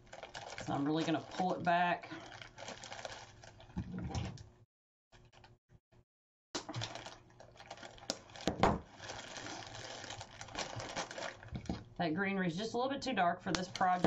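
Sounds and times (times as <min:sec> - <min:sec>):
artificial flowers rustling: 0:00.0 - 0:03.8, 0:06.8 - 0:11.7.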